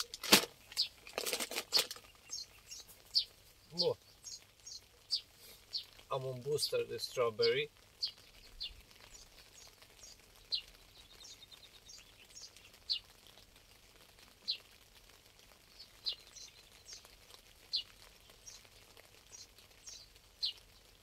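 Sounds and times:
faint bird chirps: 2.0 - 6.0, 7.4 - 13.1, 17.7 - 20.8.

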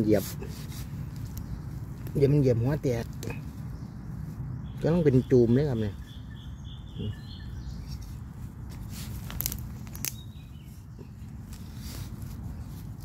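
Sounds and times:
rustling of grass and leaves: 0.0 - 13.0
sharp crackles: 0.6 - 3.7, 8.7 - 13.0.

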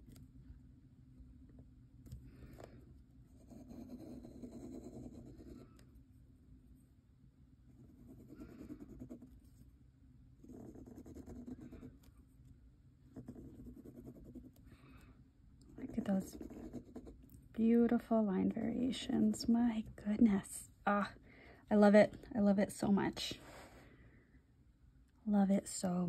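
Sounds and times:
dip pen nib scratching paper: 3.3 - 5.8, 7.8 - 9.5, 10.4 - 12.1, 13.1 - 14.6, 15.7 - 17.3.

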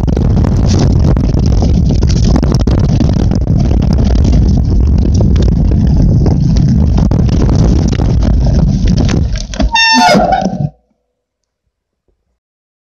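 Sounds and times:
wind buffeting microphone: 0.0 - 10.8
bike rumbling and rattling: 0.0 - 10.9
bike brakes squealing: 9.7 - 10.8.

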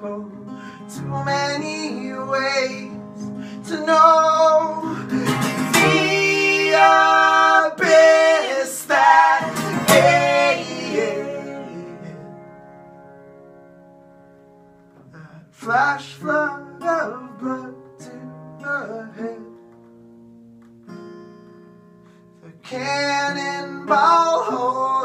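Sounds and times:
acoustic guitars playing chords: 0.0 - 25.0
wordless singing: 3.6 - 12.4.

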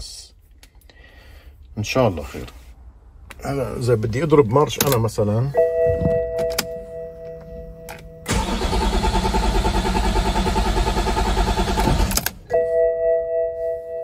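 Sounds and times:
diesel engine cranking: 8.2 - 12.5.

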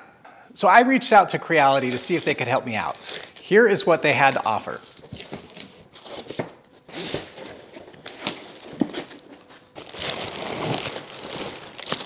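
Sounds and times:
plastic wrap crinkling: 1.7 - 6.4, 7.6 - 12.0.

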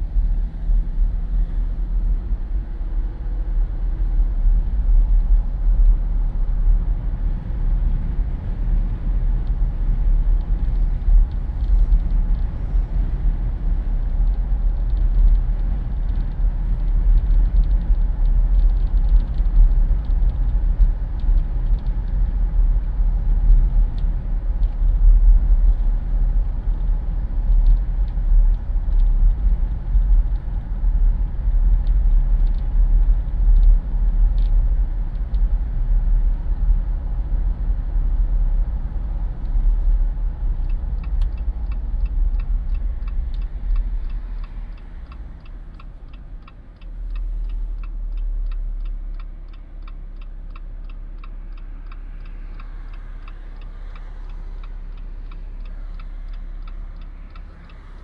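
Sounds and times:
wind buffeting through car windows: 0.0 - 49.9
road and engine rumble: 0.0 - 58.0
faint regular ticking: 38.6 - 58.0.

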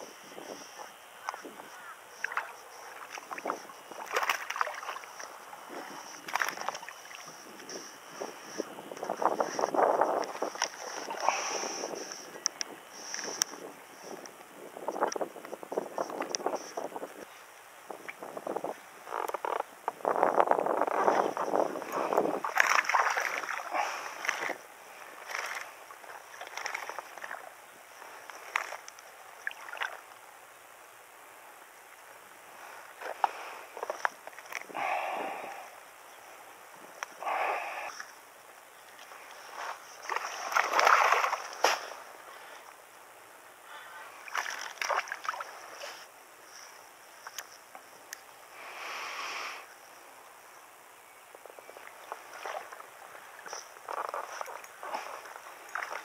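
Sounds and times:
fish splashing in water: 2.2 - 7.4, 22.3 - 24.6, 25.2 - 27.5, 40.0 - 42.1, 44.2 - 45.6.

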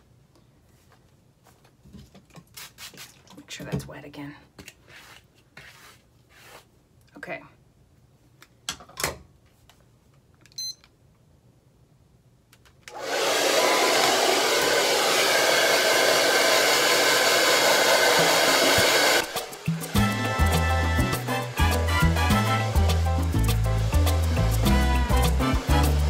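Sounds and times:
short beep: 10.6 - 10.8
hair dryer blowing: 12.9 - 26.0.

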